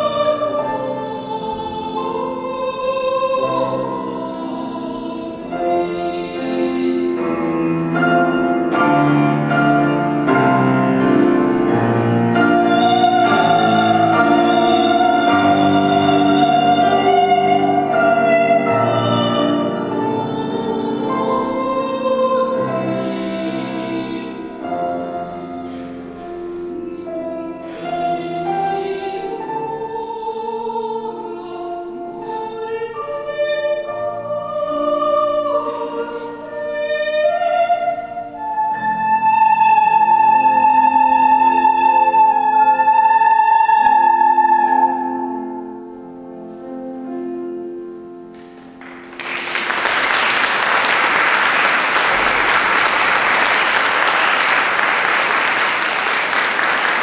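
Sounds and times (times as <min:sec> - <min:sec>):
woman singing operatically: 0:00.0 - 0:07.4, 0:12.4 - 0:25.5, 0:27.8 - 0:45.6
grand piano accompaniment: 0:00.0 - 0:57.0
audience applauding: 0:48.4 - 0:57.0.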